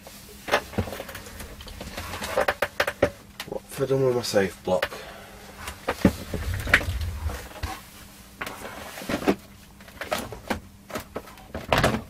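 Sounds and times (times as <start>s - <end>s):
low rumble: 5.5s - 8.1s.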